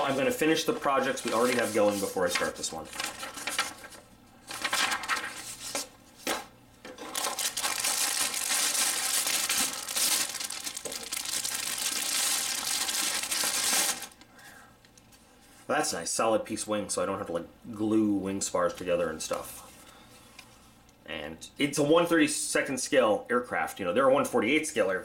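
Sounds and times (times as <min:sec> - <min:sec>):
plastic bag crinkling: 0:00.0 - 0:05.6, 0:07.0 - 0:14.2.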